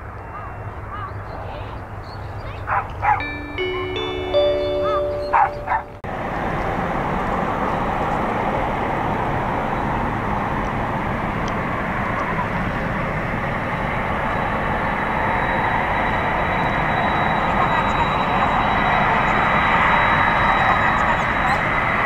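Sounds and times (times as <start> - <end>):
jet engines at taxi thrust: 6.1 - 22.0.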